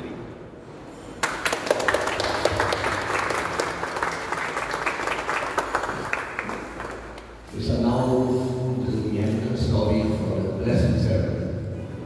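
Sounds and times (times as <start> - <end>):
people applauding: 1.2 - 7.5.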